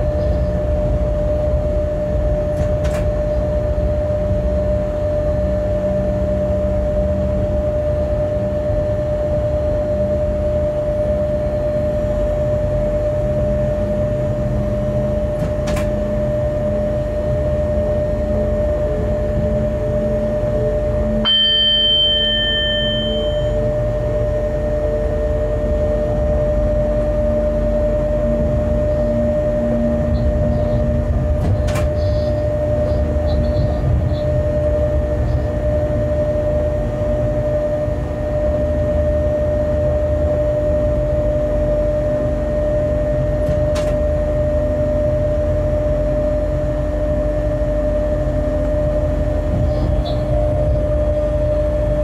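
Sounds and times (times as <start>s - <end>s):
locomotive equipment hum: 0.0s - 52.0s
low rumble of moving train: 0.0s - 52.0s
short high-pitched beep: 21.3s - 23.7s.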